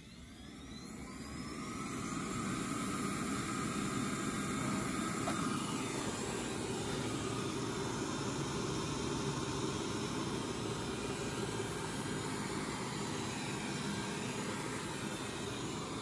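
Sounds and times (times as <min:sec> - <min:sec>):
robot vacuum fan whine: 0:00.0 - 0:16.0.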